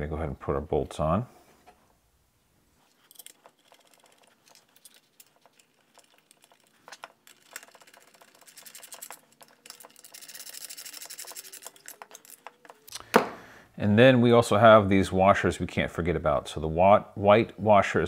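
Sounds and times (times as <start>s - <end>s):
metal parts clicking and tapping: 3.0s - 13.1s
hand ratchet clicking: 7.3s - 13.0s.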